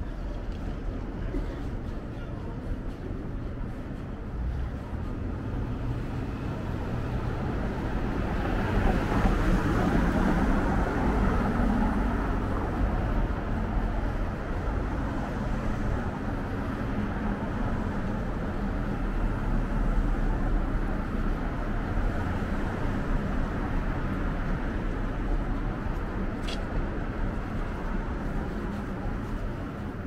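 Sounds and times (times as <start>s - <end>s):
passing cars: 4.2s - 30.0s.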